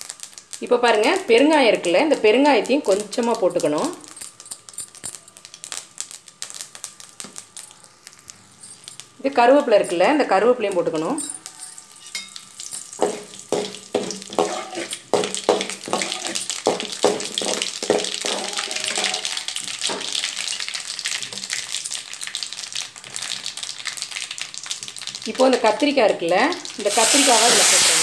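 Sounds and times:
frying hiss in hot oil: 0.0s - 28.0s
metal ladle scraping a pan: 11.8s - 20.2s.

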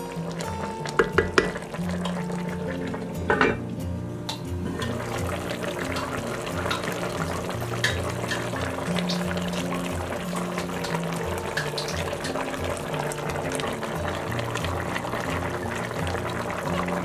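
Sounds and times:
background music with bass: 0.0s - 17.0s
pot bubbling and sputtering: 0.0s - 17.0s
spoon knocking against pot: 1.0s - 1.6s, 3.3s - 3.6s.

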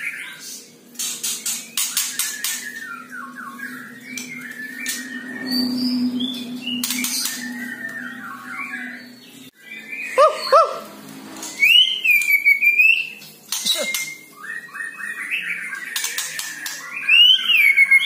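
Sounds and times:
bird singing whistled phrases: 1.7s - 10.6s, 11.5s - 18.0s.

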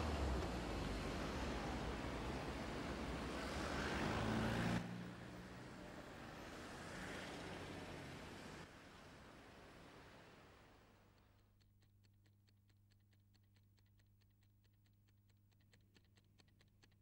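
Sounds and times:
vehicle approaching: 0.0s - 10.2s
street traffic: 0.0s - 10.8s.

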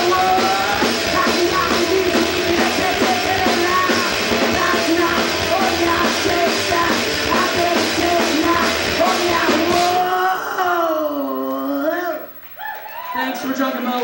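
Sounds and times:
drum kit: 0.0s - 10.2s
electric guitar: 0.0s - 10.3s
person singing: 0.0s - 12.0s.

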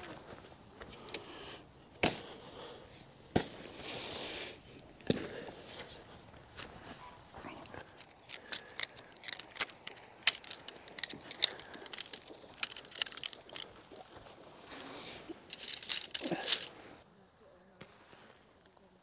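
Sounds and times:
camping gear clicks and clacks: 0.8s - 1.4s, 7.4s - 16.8s
soft rustle: 3.7s - 17.0s.

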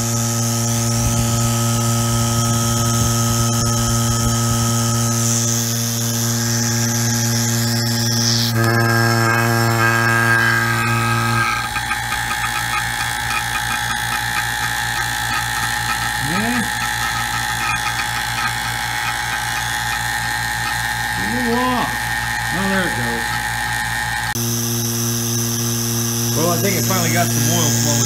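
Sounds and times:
vacuum pump rattling: 8.6s - 24.3s.

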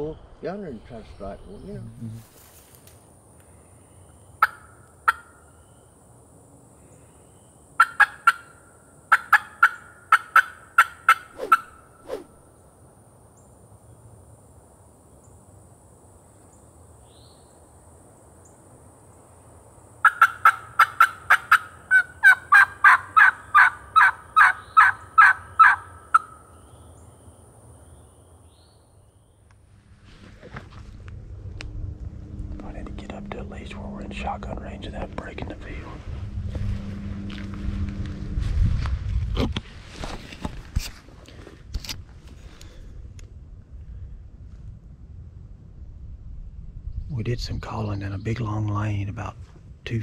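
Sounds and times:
turkey call yelps: 4.4s - 5.4s, 7.8s - 11.7s, 20.0s - 26.4s.

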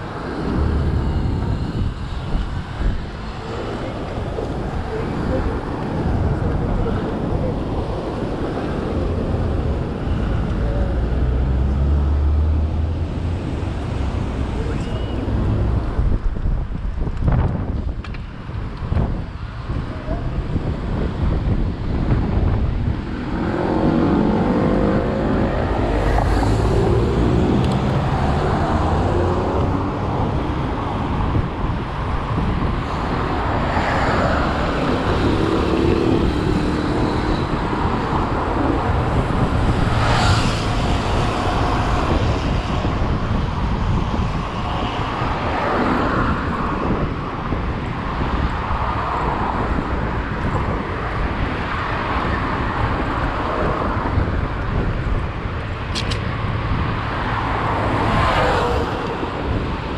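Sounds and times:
vehicle rumble: 0.0s - 59.9s
wind on microphone: 0.0s - 59.9s.

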